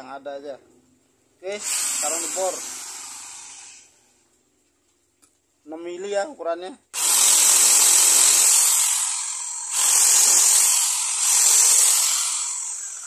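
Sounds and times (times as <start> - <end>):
electric drill boring into wood: 1.6 - 3.9, 7.0 - 13.0.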